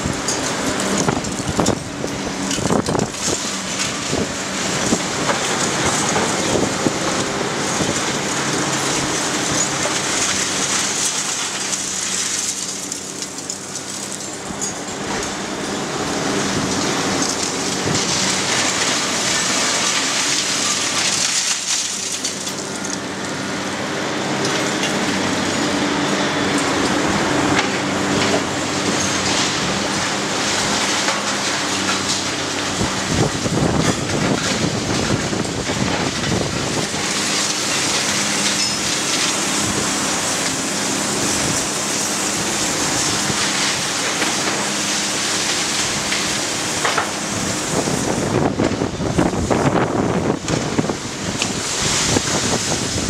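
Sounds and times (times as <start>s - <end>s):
debris crashing: 0.0s - 15.4s, 16.6s - 23.0s
building material crunching: 0.0s - 23.3s
heavy machine engine: 0.0s - 53.0s.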